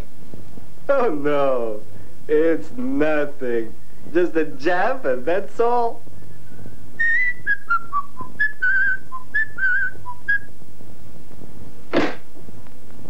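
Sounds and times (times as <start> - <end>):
person whistling a tune: 7.0 - 10.5
brief loud sound: 11.9 - 12.3.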